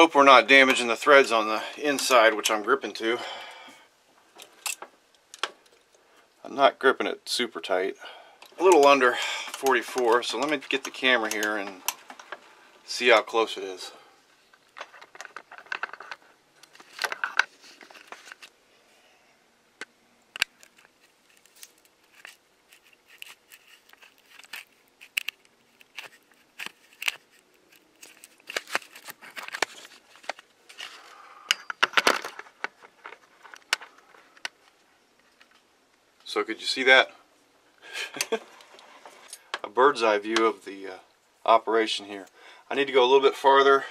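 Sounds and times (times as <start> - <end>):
handling clicks and scrapes: 8.4 - 12.5, 14.4 - 18.6, 20.4 - 35.6.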